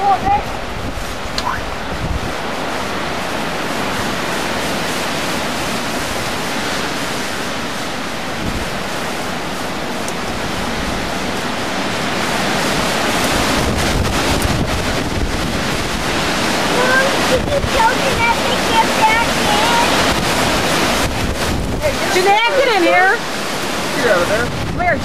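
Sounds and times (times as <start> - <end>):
storm wind rushing through trees: 0.0 - 25.0
wind buffeting on microphone: 0.0 - 25.0.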